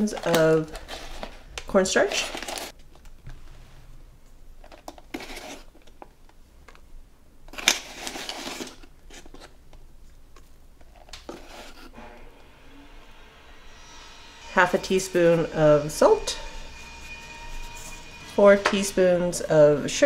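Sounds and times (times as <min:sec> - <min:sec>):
spoon scraping cornstarch: 0:11.0 - 0:11.9.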